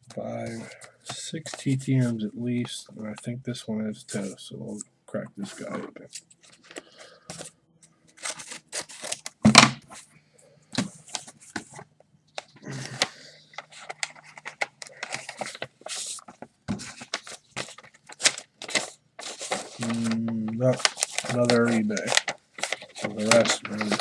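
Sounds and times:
paper envelope tearing and rustling: 8.2s - 9.7s, 12.7s - 24.0s.

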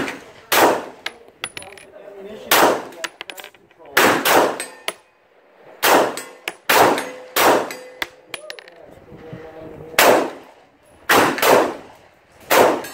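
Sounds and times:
pistol shots: 0.0s - 1.1s, 2.5s - 3.0s, 4.0s - 4.9s, 5.8s - 7.9s, 10.0s - 10.4s, 11.1s - 11.8s, 12.5s - 12.9s.

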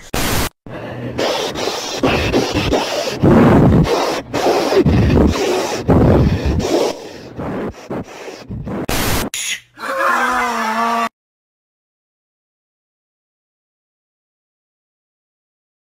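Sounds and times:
distorted garbled audio: 1.2s - 9.3s.

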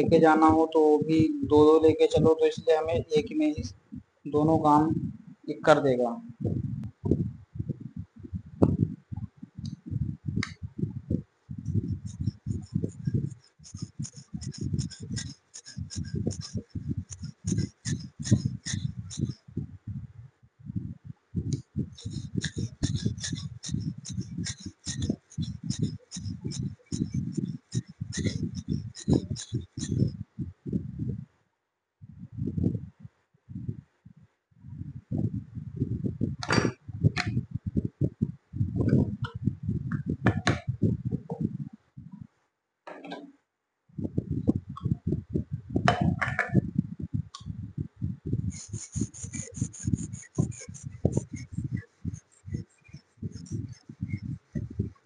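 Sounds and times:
high scratchy sound: 11.7s - 19.4s, 22.0s - 30.2s, 48.5s - 54.6s
chisel rubbing on sharpening stone: 12.0s - 19.4s, 22.0s - 30.2s, 48.5s - 54.2s.

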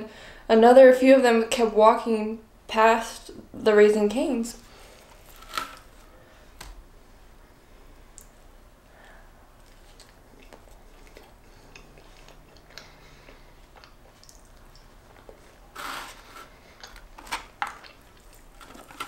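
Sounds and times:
close-miked chewing: 9.5s - 19.0s
wet mouth clicks: 13.7s - 14.9s.

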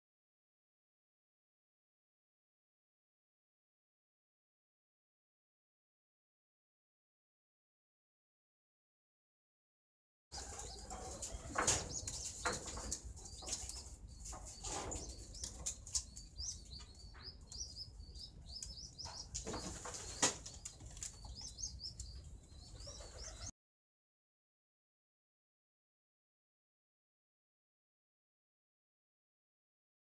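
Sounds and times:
high-pitched bird chirping: 10.4s - 23.5s.

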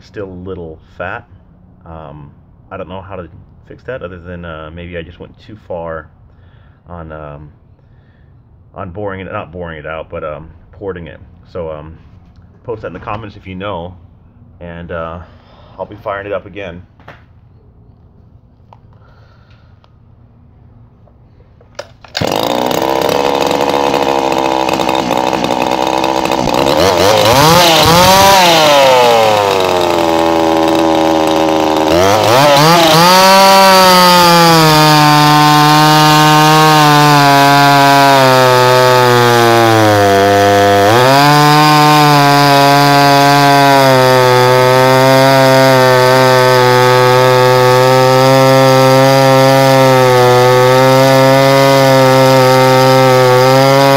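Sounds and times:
chainsaw cutting into log: 21.8s - 53.9s
chainsaw revving: 21.8s - 53.9s.

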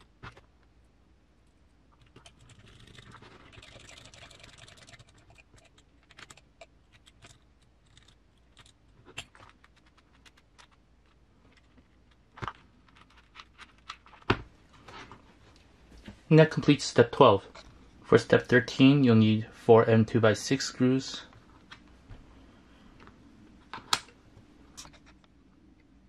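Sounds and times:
rustling and scraping: 6.9s - 16.3s.

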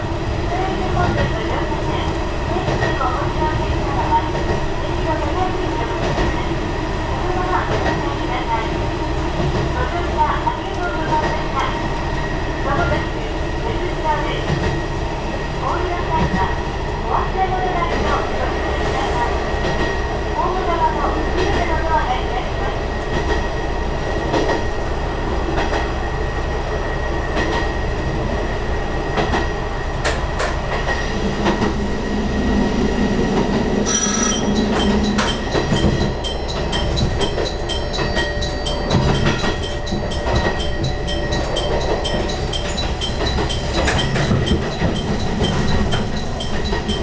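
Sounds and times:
diesel railcar running: 0.0s - 47.0s
wheels clicking over rail joints: 34.3s - 47.0s
evenly spaced ticks: 38.9s - 47.0s.

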